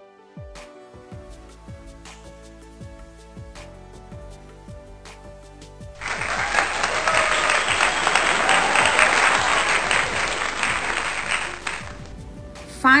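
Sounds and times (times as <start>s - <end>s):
background music: 0.0s - 13.0s
loud applause: 6.0s - 12.1s.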